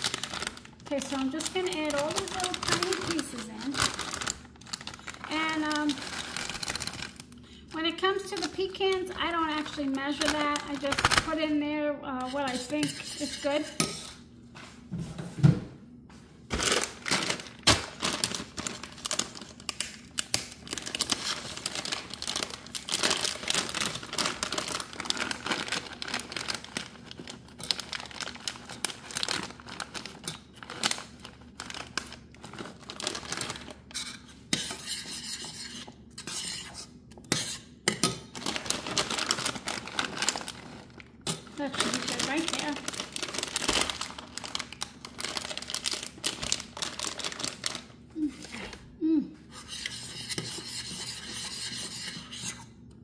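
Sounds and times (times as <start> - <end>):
plastic bag crinkling: 0.0 - 11.5, 16.5 - 34.0, 38.3 - 48.8
metal spoon scraping a pan: 12.2 - 14.2, 33.9 - 38.1, 49.5 - 52.7.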